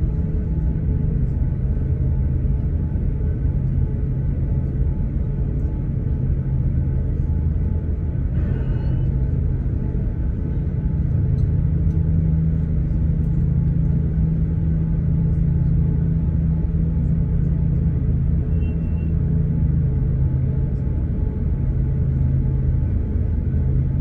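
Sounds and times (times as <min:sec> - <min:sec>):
airplane cabin engine drone: 0:00.0 - 0:24.0.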